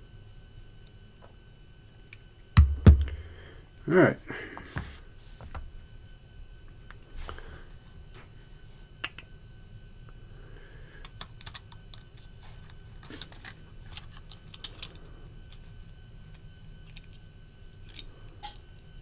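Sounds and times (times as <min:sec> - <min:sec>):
faint steady hum: 0:00.0 - 0:19.0
small metal parts clicking: 0:11.0 - 0:12.2, 0:13.0 - 0:15.6, 0:16.8 - 0:18.7.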